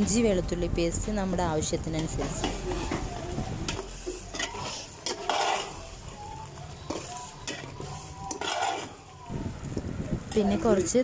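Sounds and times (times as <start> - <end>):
masala sizzling in oil: 1.9 - 11.0
metal spoon scraping a pot: 2.0 - 6.1, 6.8 - 9.1.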